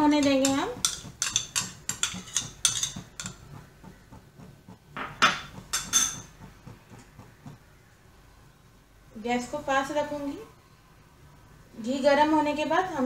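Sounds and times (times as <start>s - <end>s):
metal spoon clinking on metal pan: 0.1s - 3.5s, 5.2s - 6.3s.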